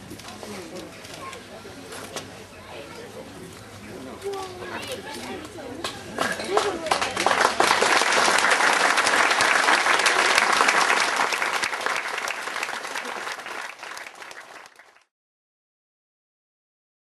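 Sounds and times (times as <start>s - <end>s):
crowd applauding: 6.2s - 15.1s.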